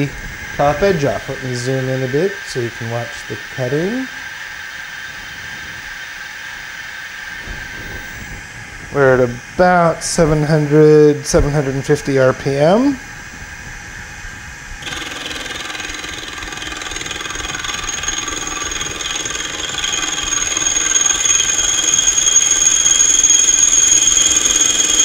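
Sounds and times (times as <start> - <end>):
end mill cutting whine: 0.0 - 25.0
milling machine spindle running: 14.8 - 25.0.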